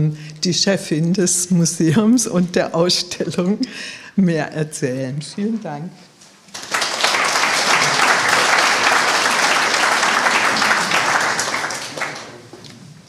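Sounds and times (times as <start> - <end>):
audience applauding: 6.5 - 12.6.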